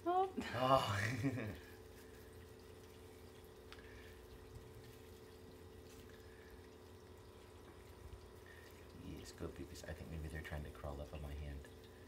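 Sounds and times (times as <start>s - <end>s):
steady low hum: 0.0s - 12.0s
faint ticks: 2.6s - 7.0s.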